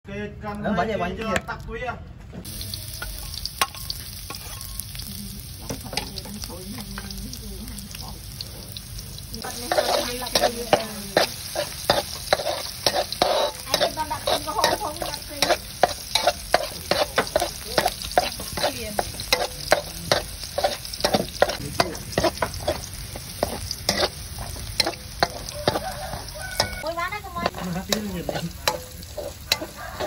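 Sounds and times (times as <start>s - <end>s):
food sizzling in hot oil: 2.4s - 30.0s
metal spatula scraping a wok: 2.9s - 5.1s, 9.4s - 30.0s.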